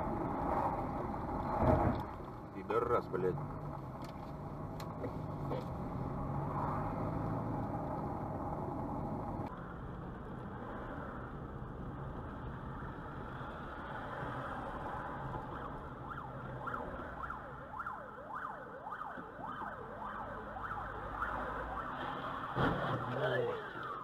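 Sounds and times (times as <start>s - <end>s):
car road and engine noise: 0.0s - 24.0s
fire engine siren yelping: 15.5s - 24.0s.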